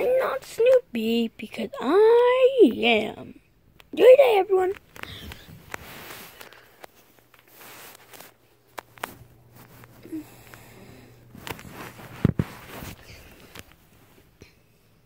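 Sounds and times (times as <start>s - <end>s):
fabric rubbing on microphone: 5.4s - 8.4s, 9.0s - 10.0s, 11.3s - 14.4s.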